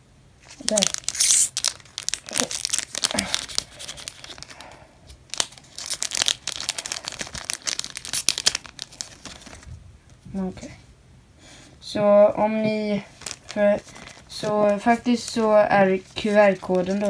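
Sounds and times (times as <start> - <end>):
foil wrapper crackling: 0.4 - 9.7, 13.1 - 17.0.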